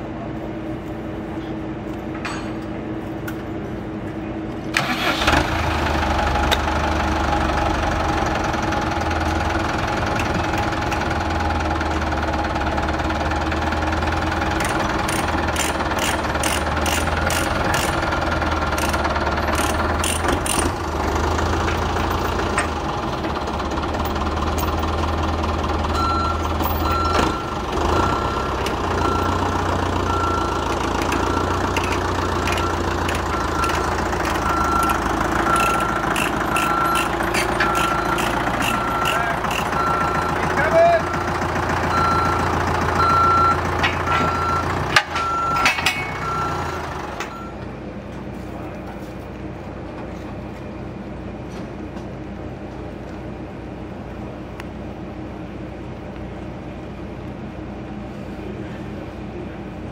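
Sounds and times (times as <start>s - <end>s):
diesel tractor engine running: 0.0s - 59.9s.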